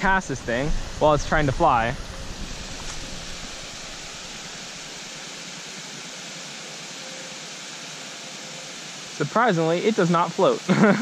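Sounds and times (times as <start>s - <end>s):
water spilling over dam: 8.7s - 11.0s.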